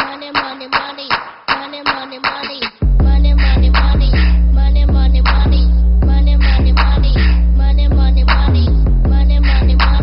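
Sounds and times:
music with heavy bass: 0:02.8 - 0:10.0.

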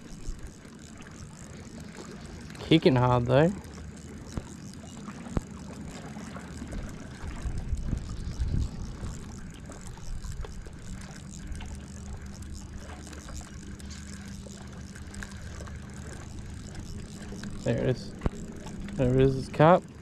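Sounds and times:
faint steady hum: 0:00.0 - 0:20.0
small waves lapping: 0:00.0 - 0:20.0
wind buffeting microphone: 0:06.6 - 0:11.0.

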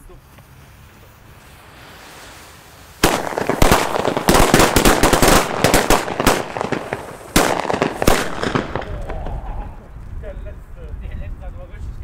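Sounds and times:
firecrackers crackling: 0:00.0 - 0:11.8
loud single firecracker bangs: 0:03.0 - 0:09.8.

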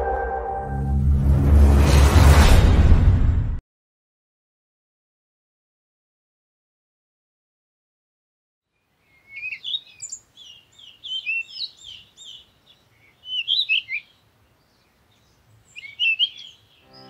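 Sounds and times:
songbird chirping: 0:08.7 - 0:17.0.

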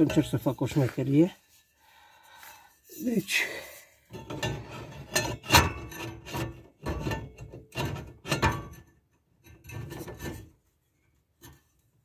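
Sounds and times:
metal scraping and rubbing: 0:00.0 - 0:01.8, 0:02.7 - 0:08.9, 0:09.5 - 0:10.7.

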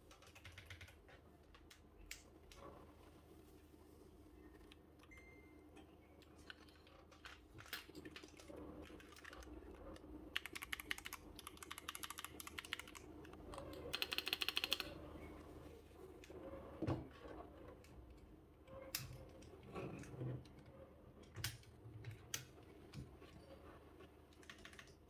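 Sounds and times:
mechanical keyboard keys clicking: 0:00.1 - 0:01.0, 0:06.3 - 0:14.9, 0:24.3 - 0:25.0.

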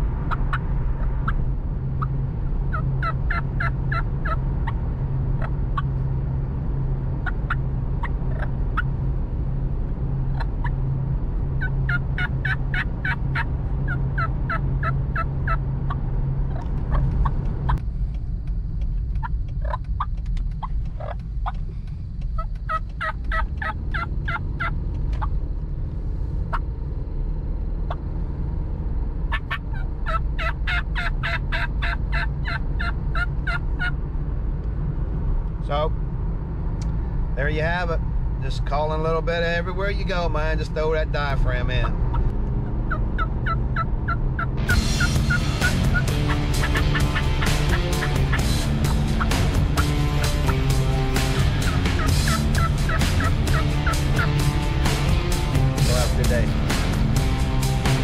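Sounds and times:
road noise inside moving car: 0:00.0 - 0:58.0
turkey mouth call yelps: 0:29.3 - 0:33.9.

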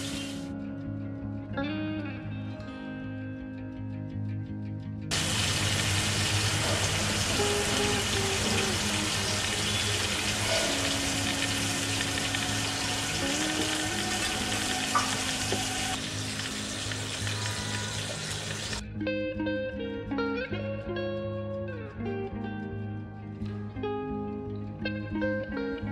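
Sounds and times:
fish sizzling in hot oil: 0:00.0 - 0:00.4, 0:05.1 - 0:18.8
soft background music: 0:00.0 - 0:25.9.

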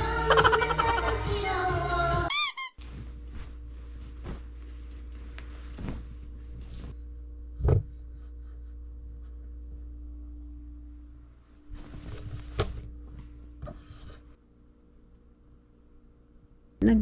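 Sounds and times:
upbeat background music: 0:00.0 - 0:02.3
warbling squeak sound effect: 0:02.3 - 0:02.8
blanket rustling: 0:02.8 - 0:07.1
low hum: 0:02.9 - 0:17.0.

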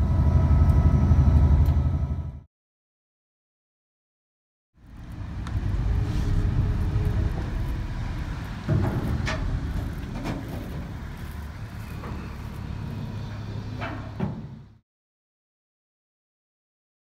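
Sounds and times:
ferry engines rumbling: 0:00.0 - 0:02.5, 0:04.8 - 0:14.8.

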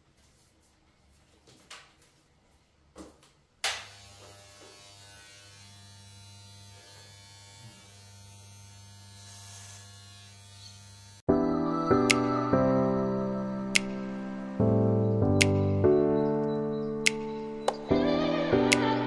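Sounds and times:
electric hair clipper buzzing: 0:03.6 - 0:11.3.

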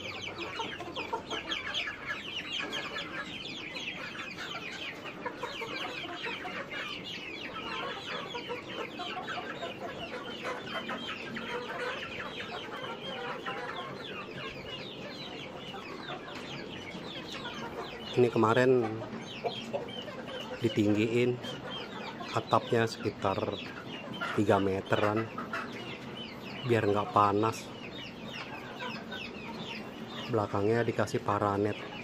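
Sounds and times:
chickens calling: 0:00.0 - 0:32.0.

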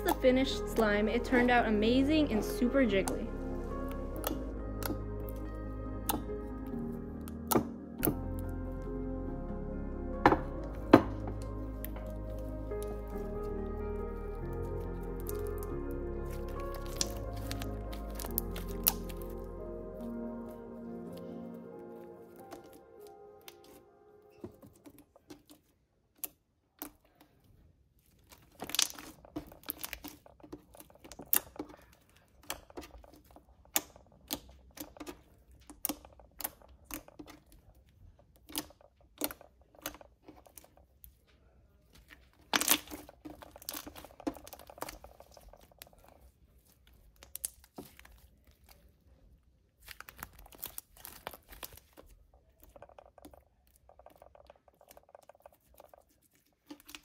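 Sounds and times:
sticky slime pops and crackles: 0:04.1 - 0:05.4, 0:14.5 - 0:19.5, 0:28.2 - 0:37.7, 0:42.0 - 0:48.9, 0:49.8 - 0:57.0.

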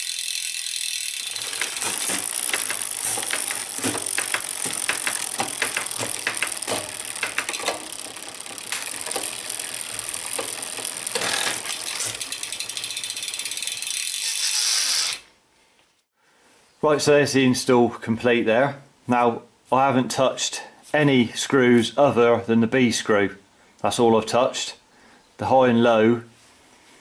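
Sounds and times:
derailleur clicks: 0:00.0 - 0:15.2
bicycle chain rattling: 0:00.0 - 0:15.3.

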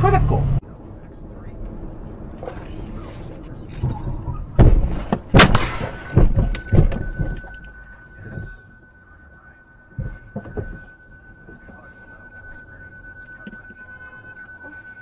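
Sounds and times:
car collision thuds: 0:03.8 - 0:07.5
thin steady high tone: 0:05.8 - 0:15.0.

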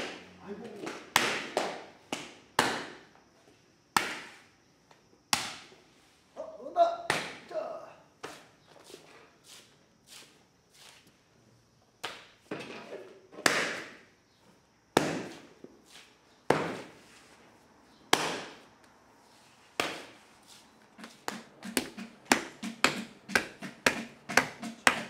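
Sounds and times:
hand tools striking wet clay: 0:21.0 - 0:25.0
wooden paddle tapping clay: 0:21.0 - 0:25.0.

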